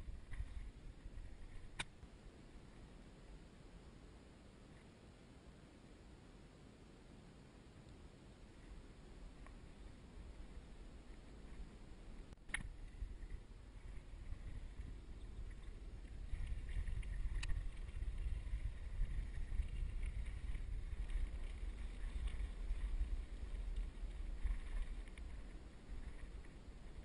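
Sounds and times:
wind buffeting the microphone: 12.7s - 27.0s.

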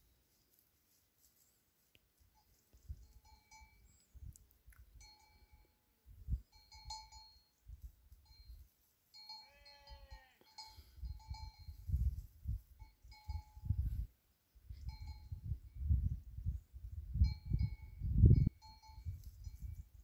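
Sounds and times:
livestock bells clinking: 2.2s - 4.1s, 4.9s - 14.0s, 14.7s - 15.7s, 17.2s - 20.0s
animal bleat: 9.4s - 10.5s
wind rumbling on microphone: 11.0s - 20.0s.

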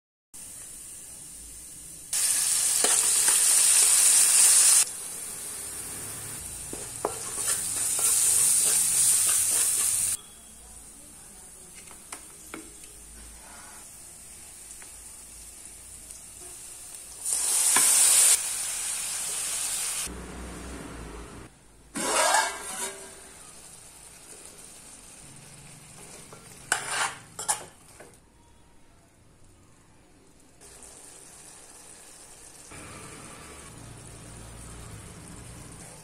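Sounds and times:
food sizzling in hot oil: 0.4s - 10.2s, 13.4s - 20.5s, 22.0s - 28.1s, 30.6s - 36.0s
metal spoon scraping pan: 6.7s - 10.2s, 22.0s - 23.5s, 26.0s - 28.1s.

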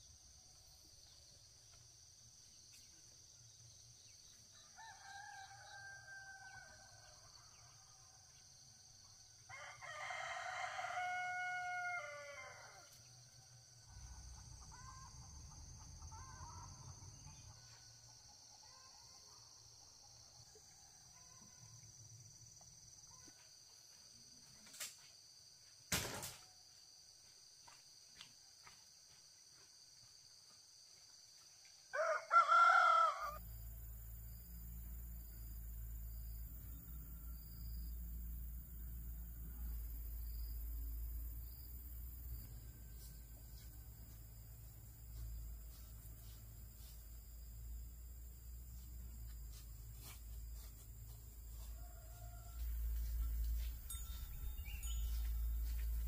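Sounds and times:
insects droning: 0.0s - 56.0s
rooster crowing: 4.6s - 7.7s, 9.5s - 12.9s, 31.9s - 33.4s, 51.5s - 54.8s.

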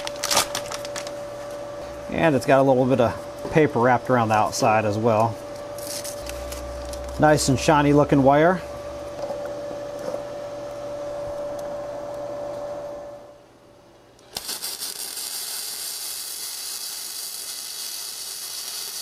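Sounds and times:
steady hum with hiss: 0.0s - 19.0s
welding arc crackling hiss: 3.8s - 8.0s, 14.2s - 19.0s.

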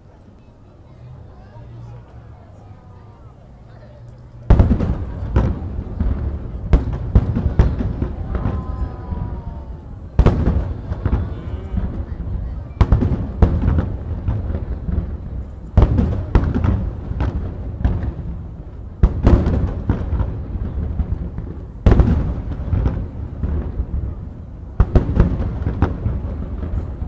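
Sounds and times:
rolling rumble: 1.0s - 27.0s.

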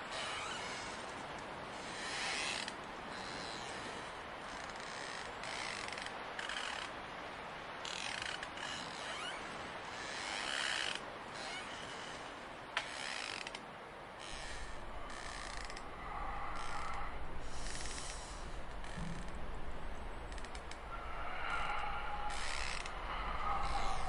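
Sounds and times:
mechanical creaks and clicks: 14.2s - 24.0s
low rumble: 14.3s - 24.0s.

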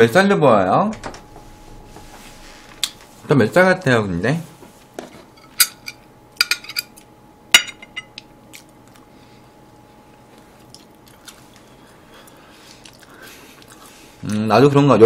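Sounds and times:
faint chewing: 8.4s - 14.5s.

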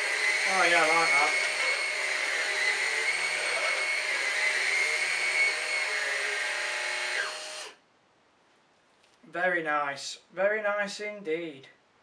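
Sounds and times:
stick vacuum whining on carpet: 0.0s - 7.8s.

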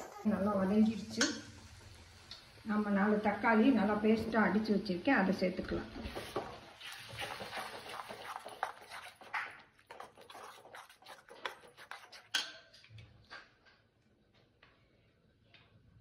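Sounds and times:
metal ladle scraping a metal pan: 6.2s - 12.7s.

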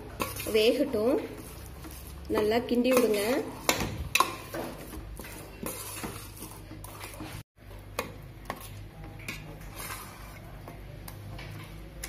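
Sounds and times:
spoon stirring thick food in pot: 0.0s - 12.0s.

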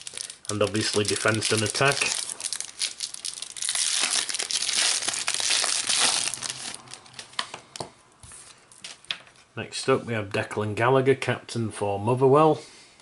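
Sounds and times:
wrapper crinkling: 0.0s - 9.5s.

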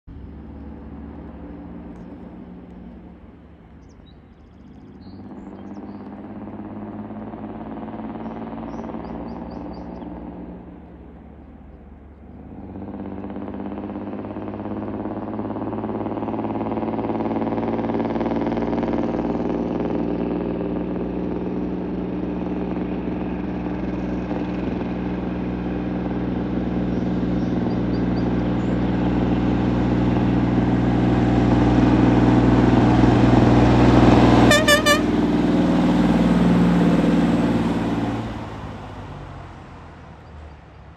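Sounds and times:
diesel truck engine pulling: 0.1s - 40.9s
truck horn toot: 34.3s - 35.6s.

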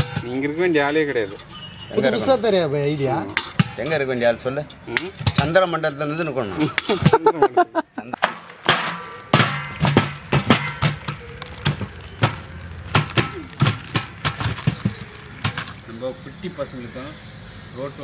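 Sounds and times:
music with sharp percussive hits: 8.2s - 15.7s.

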